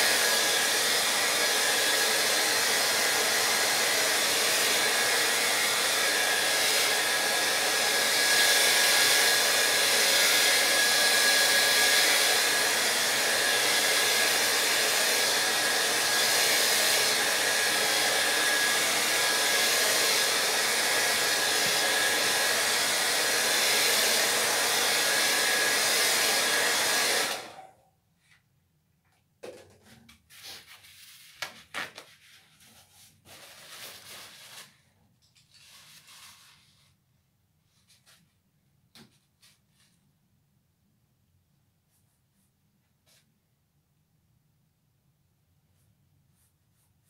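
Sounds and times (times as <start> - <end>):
hair dryer switching off: 0.0 - 27.7
hair dryer blowing: 0.0 - 27.8.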